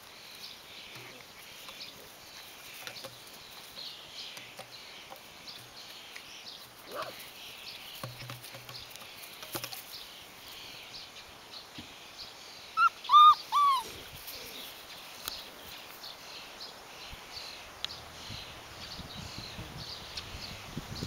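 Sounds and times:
puppy whimpering: 12.8s - 14.0s.

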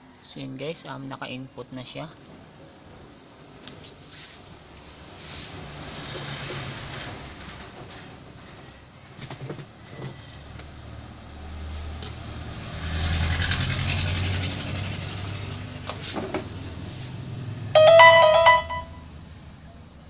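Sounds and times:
loud multi-pitch tone: 17.8s - 19.1s.

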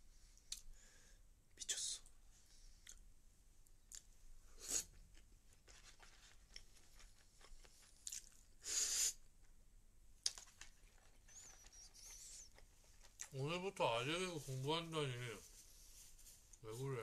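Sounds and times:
chewing and mouth clicks: 2.8s - 3.0s, 3.9s - 4.1s, 5.1s - 8.5s, 10.2s - 13.4s
short hissing noises: 4.5s - 5.0s, 8.6s - 9.3s.

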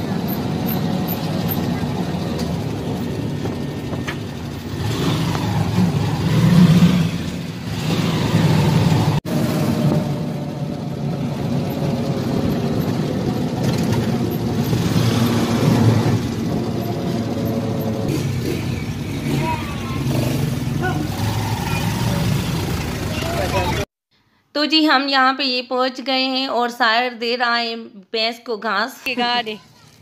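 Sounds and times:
auto-rickshaw engine running: 0.0s - 23.9s.

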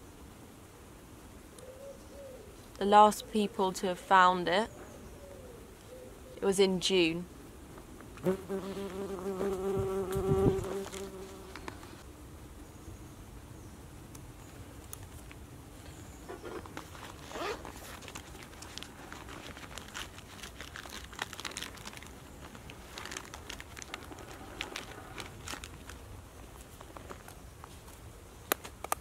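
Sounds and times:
paper crinkling: 16.5s - 28.0s.

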